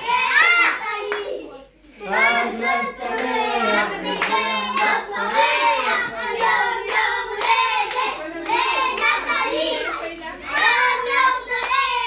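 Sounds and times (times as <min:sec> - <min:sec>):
children singing: 0:02.0 - 0:12.0.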